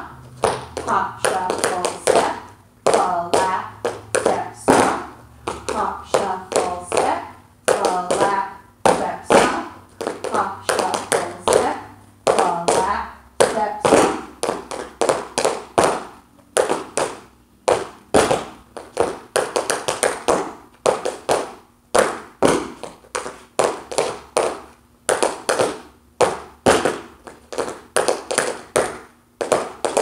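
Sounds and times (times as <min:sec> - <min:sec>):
tap shoes on dance floor: 0:00.0 - 0:30.0.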